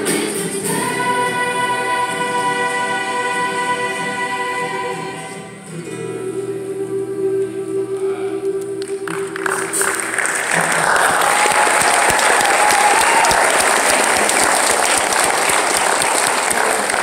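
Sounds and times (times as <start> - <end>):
choir with acoustic guitars: 0.0 - 11.2
audience applauding: 8.8 - 17.0.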